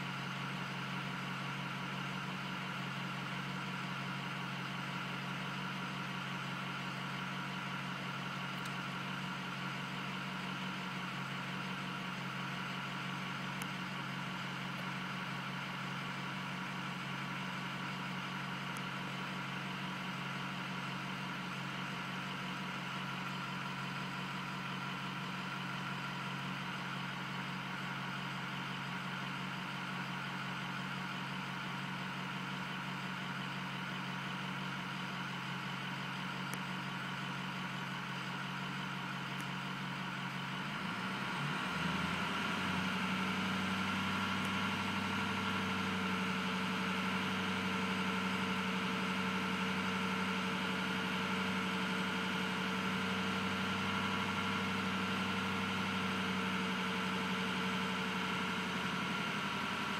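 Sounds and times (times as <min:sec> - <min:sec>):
diesel engine idling: 0:00.0 - 0:59.9.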